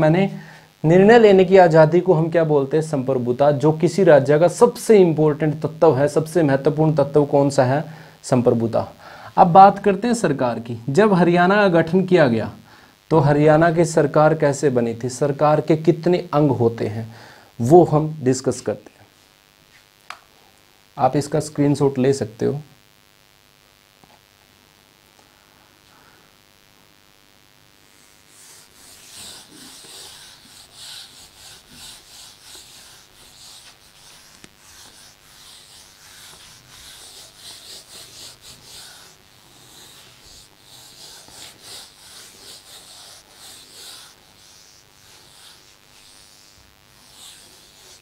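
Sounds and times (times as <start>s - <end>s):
eraser wiping whiteboard: 27.9s - 48.0s.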